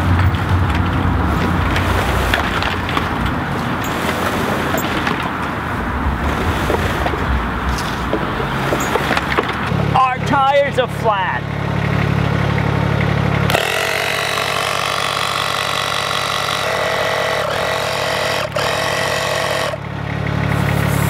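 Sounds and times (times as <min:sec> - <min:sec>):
wooden frame scraping across grass: 0:01.3 - 0:05.4, 0:06.2 - 0:09.4.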